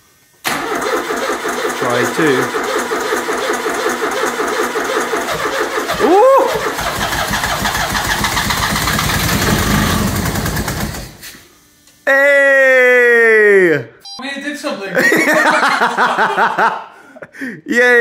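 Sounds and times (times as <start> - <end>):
engine cranking on starter: 0.4 - 11.4
engine running: 0.5 - 11.2.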